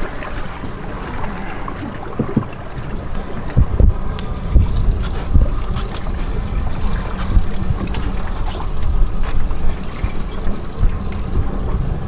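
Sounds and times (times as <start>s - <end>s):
water splashing against hull: 0.0s - 12.0s
wind buffeting microphone: 0.0s - 12.0s.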